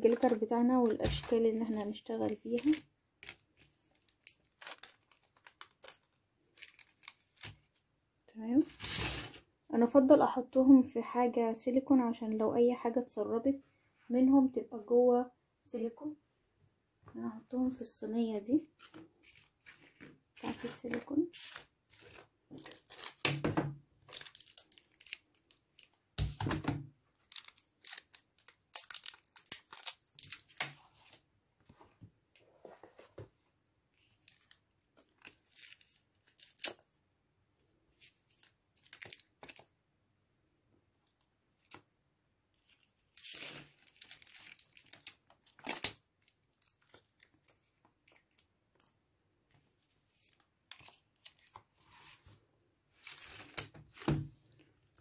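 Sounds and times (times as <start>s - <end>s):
crinkle of frames being handled: 0.0s - 7.8s, 18.7s - 36.9s, 42.6s - 55.0s.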